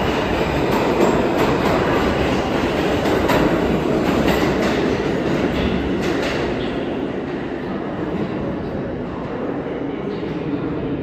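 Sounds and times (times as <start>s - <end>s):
train rolling rumble: 0.0s - 11.0s.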